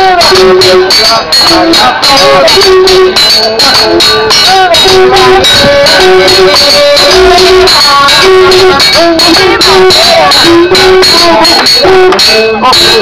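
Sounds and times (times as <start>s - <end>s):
metal blades clinking rhythmically: 0.0s - 13.0s
voices: 0.0s - 13.0s
horn blowing low note: 2.2s - 3.2s.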